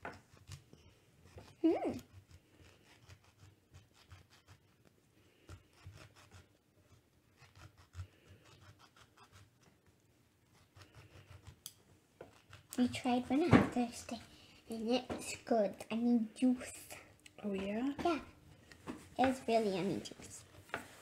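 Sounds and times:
knife rubbing through grapefruit: 0:00.0 - 0:09.7, 0:10.4 - 0:14.0.

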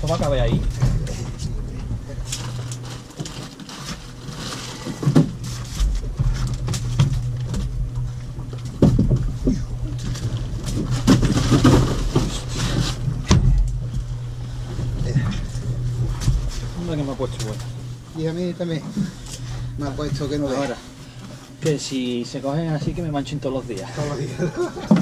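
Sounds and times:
plastic rustling: 0:00.0 - 0:22.2
boat engine idling: 0:00.0 - 0:25.0
knocks on deck: 0:13.2 - 0:13.6.

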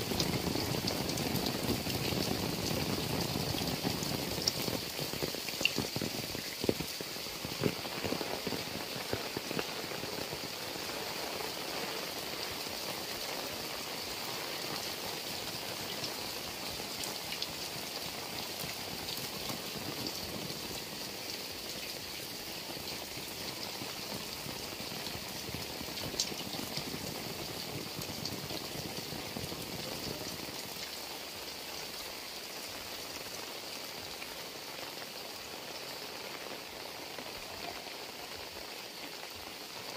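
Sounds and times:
water running off roof edges: 0:00.0 - 0:31.7
heavy rain splashing on ground: 0:00.0 - 0:39.9.

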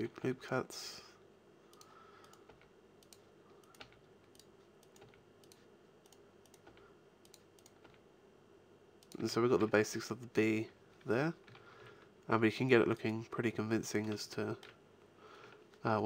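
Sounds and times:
computer keyboard clicks: 0:01.7 - 0:08.0
mouse clicks: 0:01.7 - 0:08.0.

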